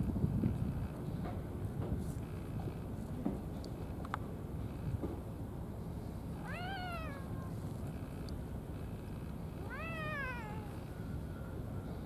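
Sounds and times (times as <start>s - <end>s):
cat meowing: 6.4s - 7.6s, 9.6s - 10.8s.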